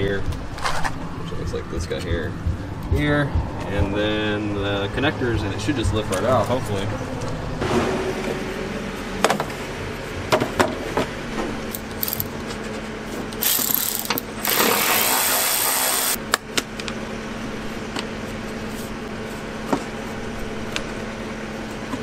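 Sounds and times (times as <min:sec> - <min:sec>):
ratchet clicking: 0:11.7 - 0:12.3, 0:13.4 - 0:16.2.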